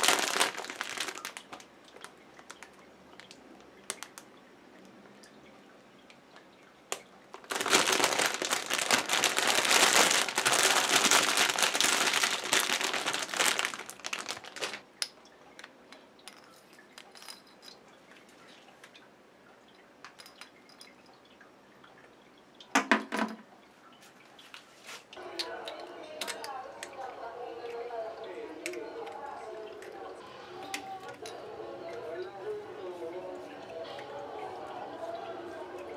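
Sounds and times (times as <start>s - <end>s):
plastic packaging crinkling: 0.0s - 4.2s, 7.3s - 14.9s.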